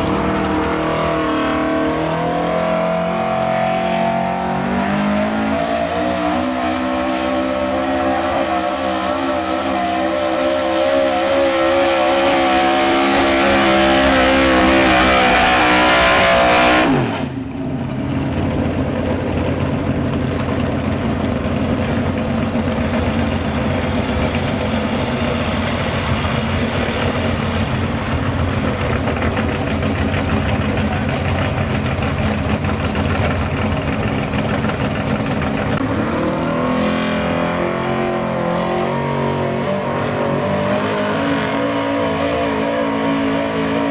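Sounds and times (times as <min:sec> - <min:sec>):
low steady engine rumble: 0:00.0 - 0:03.4, 0:17.2 - 0:36.0
truck engine at full throttle: 0:00.0 - 0:43.9
truck engine revving up: 0:00.0 - 0:43.9.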